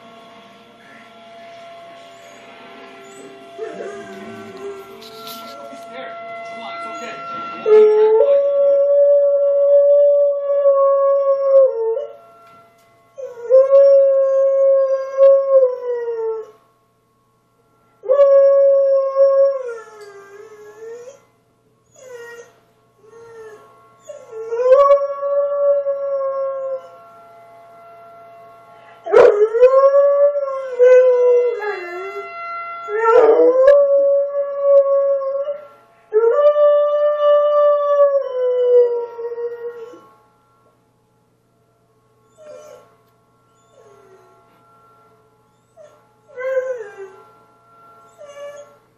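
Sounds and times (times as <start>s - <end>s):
dog howling: 0.8s - 12.2s, 18.0s - 21.3s, 21.9s - 27.0s, 28.9s - 40.2s, 42.2s - 44.5s, 45.5s - 47.4s, 48.0s - 48.8s.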